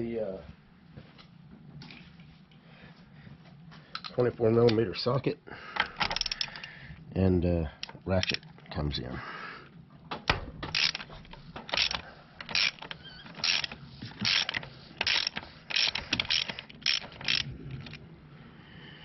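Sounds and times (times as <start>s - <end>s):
ratchet clicking: 6.0s - 6.7s, 10.7s - 18.0s.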